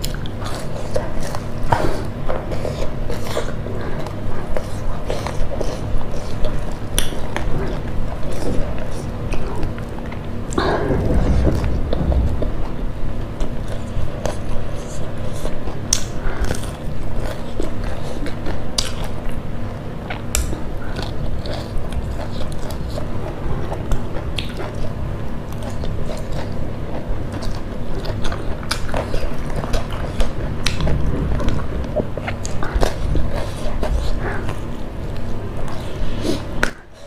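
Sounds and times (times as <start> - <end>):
loud chewing and biting: 0.0 - 37.0
mouth clicks and smacks: 14.3 - 16.8.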